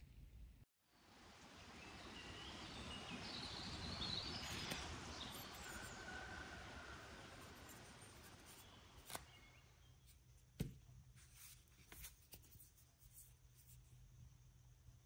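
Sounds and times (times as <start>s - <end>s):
short knock with dull thud: 10.6s - 10.8s.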